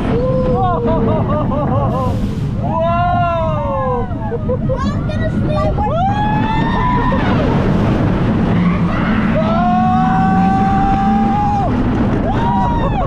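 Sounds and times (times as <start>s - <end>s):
wind rushing over camera: 5.1s - 13.0s
riders screaming: 5.9s - 7.7s, 8.4s - 13.0s.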